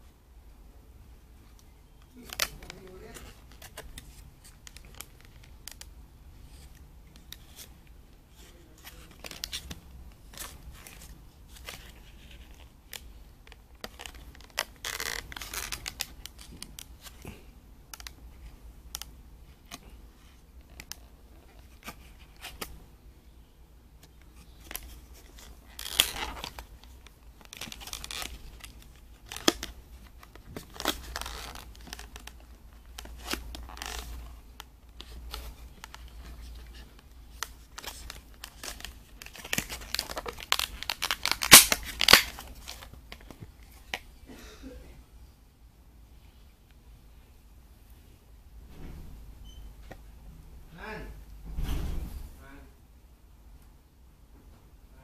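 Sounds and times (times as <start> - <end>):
plastic wrapping crinkling and scraping: 2.0 - 22.7, 24.3 - 44.1.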